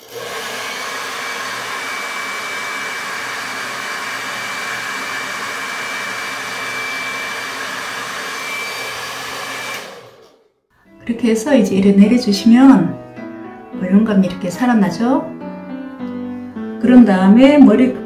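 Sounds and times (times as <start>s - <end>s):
hair dryer running: 0.0s - 10.4s.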